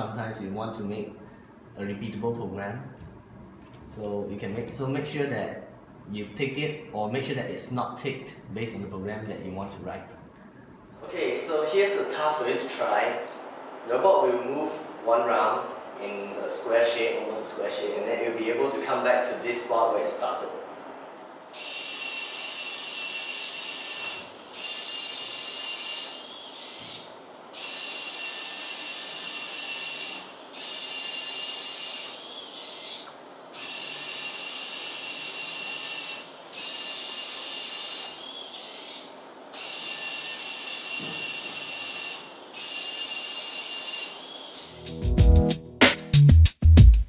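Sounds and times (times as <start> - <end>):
robot servo motors whining: 21.2 - 45.0.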